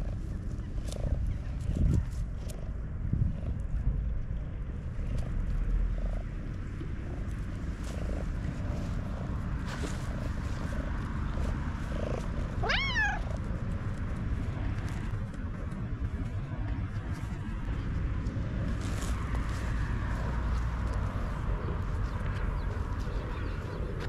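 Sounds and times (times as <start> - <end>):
cat purring: 0.0 - 24.0
high cat meow: 12.6 - 13.3.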